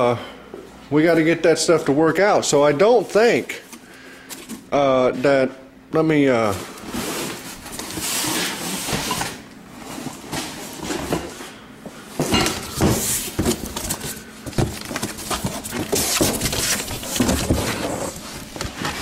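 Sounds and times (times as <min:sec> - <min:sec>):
clutter being moved: 0:06.4 - 0:11.6, 0:12.2 - 0:19.0
cardboard boxes rustling: 0:06.5 - 0:11.5, 0:12.6 - 0:19.0.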